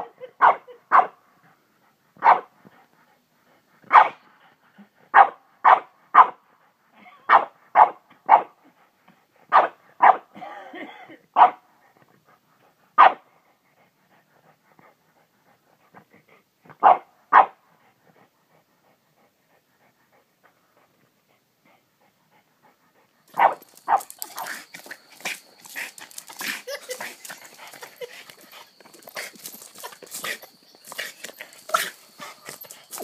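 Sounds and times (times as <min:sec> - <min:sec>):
small dog barking: 0:00.0 - 0:01.2, 0:02.2 - 0:02.5, 0:03.9 - 0:04.2, 0:05.1 - 0:06.4, 0:07.3 - 0:08.5, 0:09.5 - 0:10.3, 0:11.4 - 0:11.6, 0:13.0 - 0:13.2, 0:16.8 - 0:17.6, 0:23.3 - 0:24.6
paws digging in loose dirt: 0:23.3 - 0:33.0.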